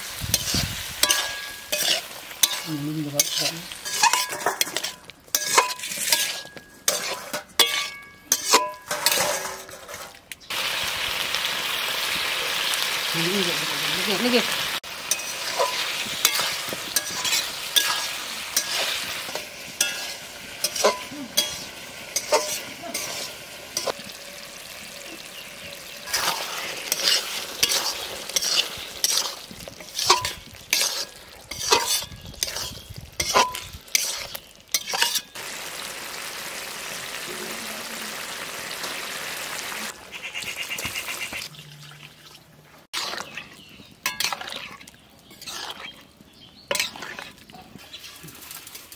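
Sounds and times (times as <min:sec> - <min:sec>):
vegetables sizzling in a pan: 0:00.0 - 0:08.6, 0:10.5 - 0:40.0.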